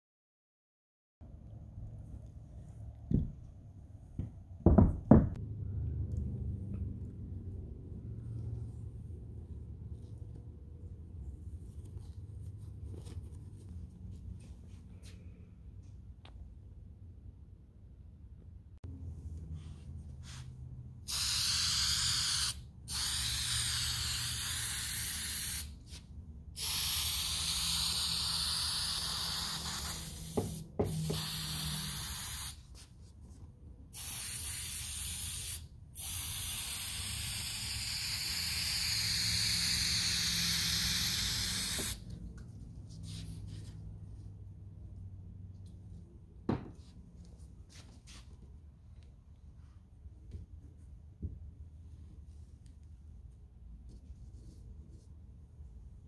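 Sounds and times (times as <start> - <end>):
low steady hum: 5.3 - 21.1
aerosol can spraying: 21.1 - 26.0, 26.6 - 32.7, 34.0 - 42.1.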